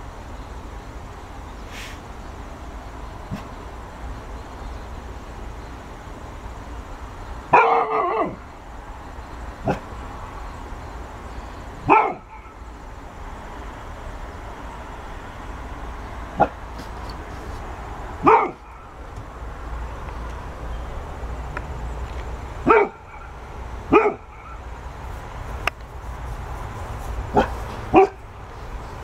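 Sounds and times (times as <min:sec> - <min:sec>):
dog barking: 0:07.5 - 0:08.4, 0:09.6 - 0:09.9, 0:11.8 - 0:12.6, 0:16.4 - 0:16.6, 0:18.2 - 0:18.9, 0:22.6 - 0:24.6, 0:27.3 - 0:28.2.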